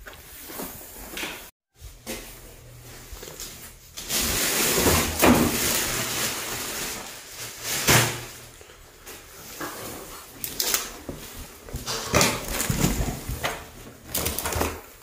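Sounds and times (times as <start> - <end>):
footsteps on wooden ladder: 11.0 - 14.7.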